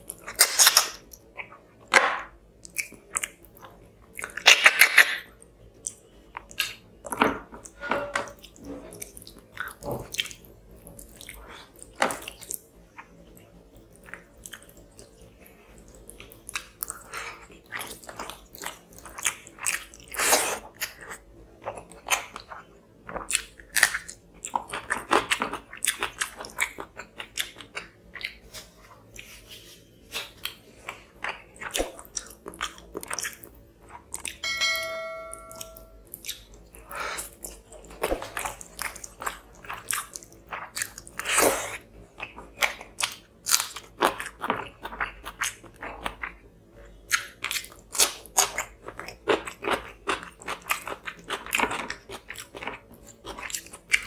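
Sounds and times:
chewing and crunching: 0.0 - 1.8, 2.6 - 7.7, 8.3 - 34.4, 36.0 - 54.0
notification chime: 34.4 - 36.0.

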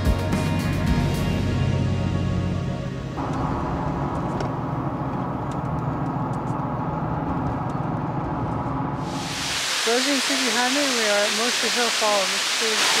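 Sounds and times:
engine and tyre rumble: 1.5 - 9.0.

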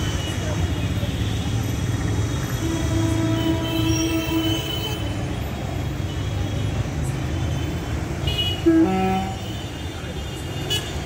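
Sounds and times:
bus engines idling: 0.0 - 11.0
road traffic rumble: 0.0 - 11.0
long steady horn: 2.4 - 5.4, 7.5 - 11.0.

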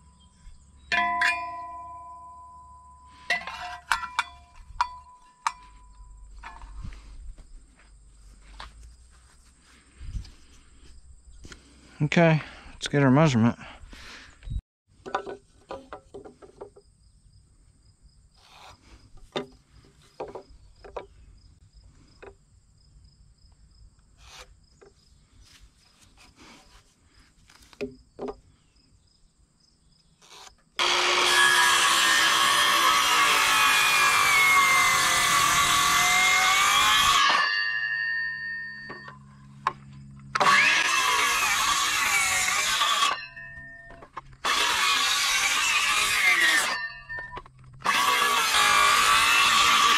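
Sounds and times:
circular saw cutting wood: 18.4 - 19.0, 30.2 - 49.9.

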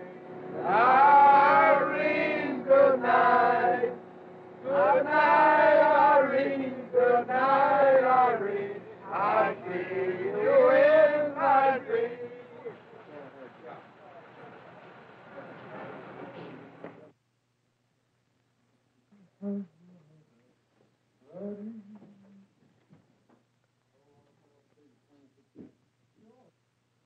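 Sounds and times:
man singing unaccompanied: 0.0 - 4.0, 4.6 - 12.5.

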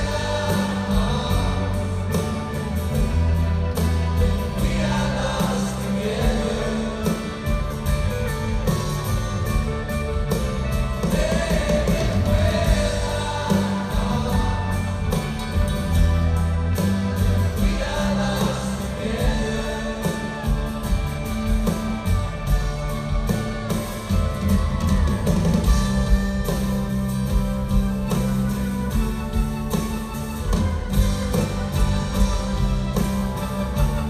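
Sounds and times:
people singing: 0.0 - 8.2, 10.7 - 16.0, 17.1 - 24.7
drum kit: 0.0 - 34.0
guitars: 0.0 - 34.0.

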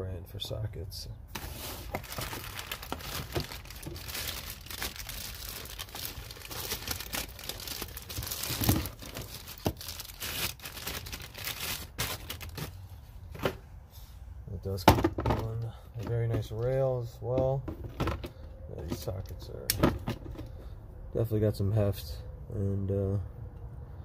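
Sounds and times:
packaging crinkling and tearing: 1.4 - 12.8.

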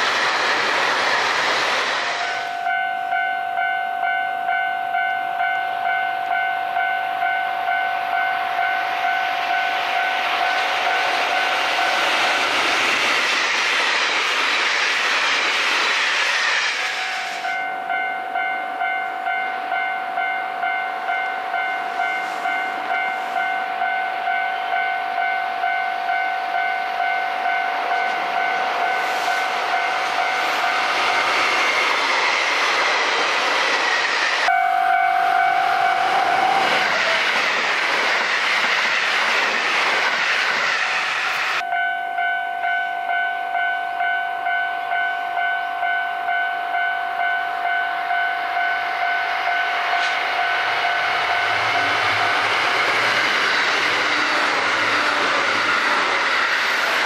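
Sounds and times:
train wheels rushing: 0.0 - 2.8, 7.7 - 18.5, 21.1 - 34.5, 35.2 - 41.6, 48.1 - 57.0
level crossing warning bell: 2.2 - 12.4, 17.4 - 31.4, 34.4 - 37.3, 41.6 - 53.1.

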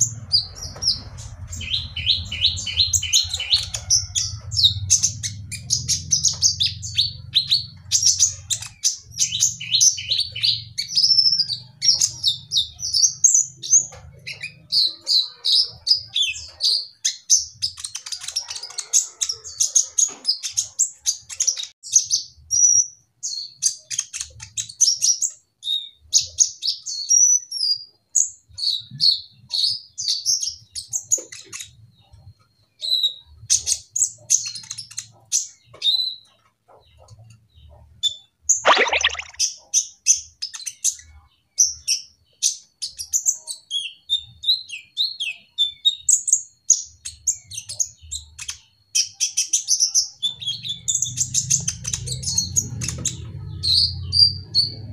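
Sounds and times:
bird chirping twitters: 38.6 - 39.4.

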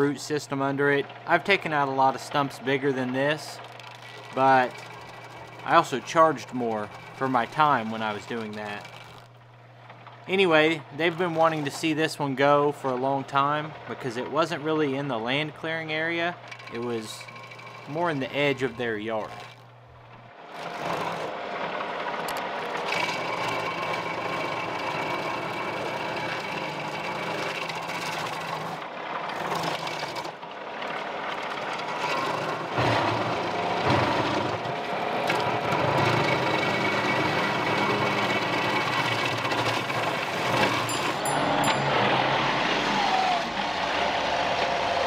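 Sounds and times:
tractor diesel engine under load: 0.0 - 9.4, 20.5 - 45.0
stump grinder grinding wood: 0.8 - 45.0.

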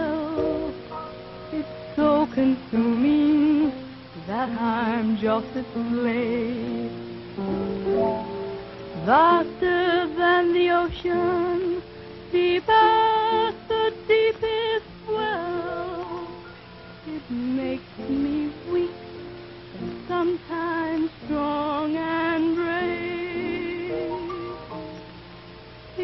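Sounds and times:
woman singing with vibrato: 0.0 - 0.8, 1.5 - 7.0, 9.0 - 16.4, 17.1 - 19.4, 20.0 - 24.3
soft instrumental accompaniment: 0.0 - 26.0.

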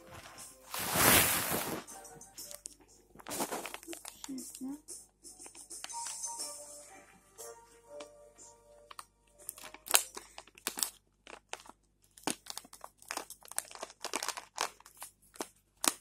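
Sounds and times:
plastic packet crinkling: 0.0 - 4.7, 8.9 - 16.0.

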